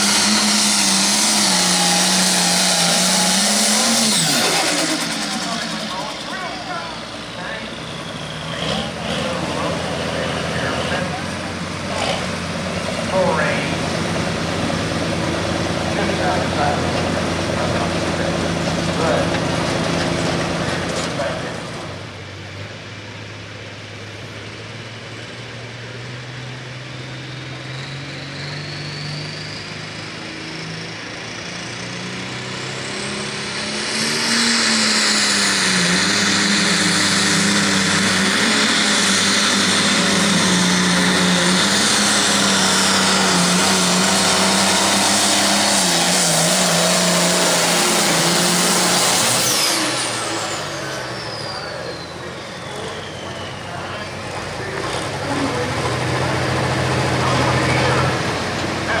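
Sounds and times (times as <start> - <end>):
diesel tractor engine under load: 0.0 - 59.0.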